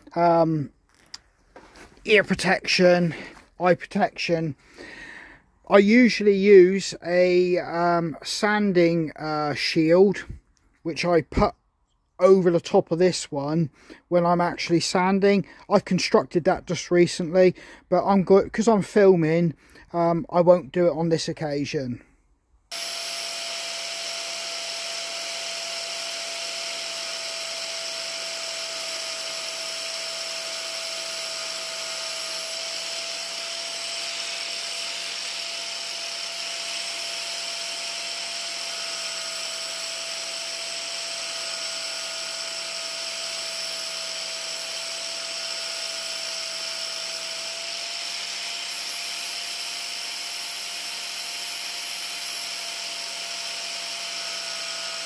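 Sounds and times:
angle grinder grinding wood: 0.0 - 4.0, 22.7 - 55.0.

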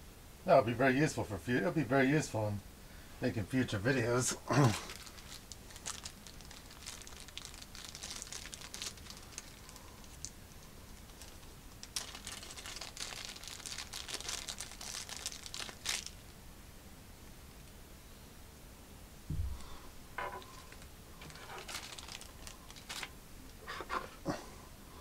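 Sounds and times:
plastic bag crinkling: 4.5 - 16.4, 20.2 - 24.2.

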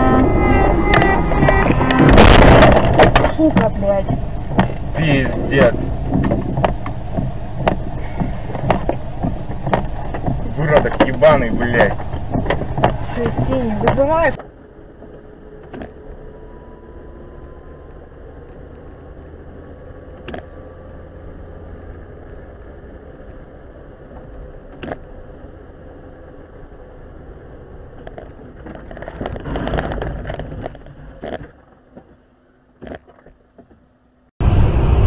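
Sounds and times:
rush of noise: 0.0 - 14.4, 34.4 - 35.0
engine and tyre hum: 0.0 - 35.0
faint whine: 0.0 - 35.0.

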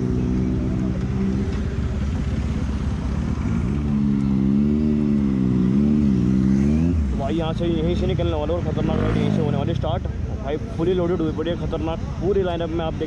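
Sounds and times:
motorcycle engine revving: 0.0 - 9.8.

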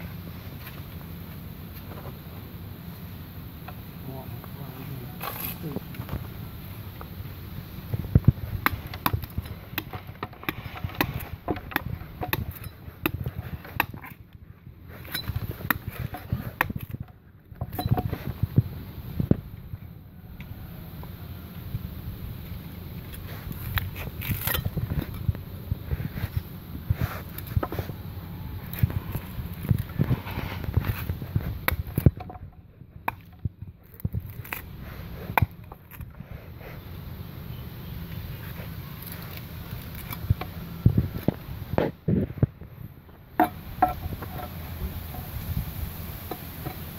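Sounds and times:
knife chopping tree bark: 8.2 - 14.2, 15.0 - 16.9, 33.0 - 36.0.

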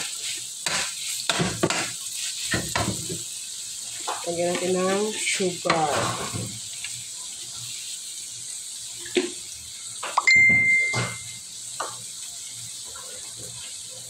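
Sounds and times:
sharp ringing ding: 10.2 - 11.4.

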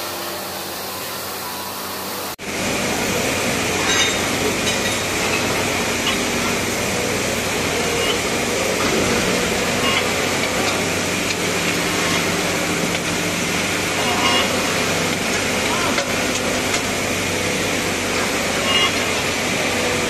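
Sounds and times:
low machinery hum: 0.0 - 20.0.

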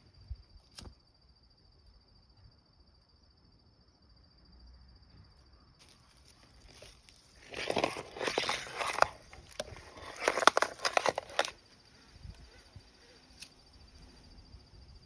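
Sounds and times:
dry leaves rustling and crackling: 5.8 - 11.6.

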